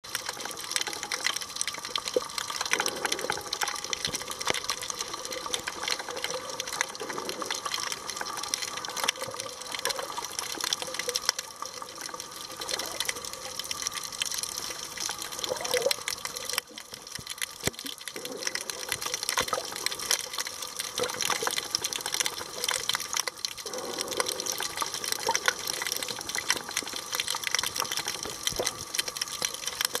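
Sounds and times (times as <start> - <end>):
small underwater clicks and crackles: 0.0 - 30.0
underwater water noise: 0.0 - 30.0.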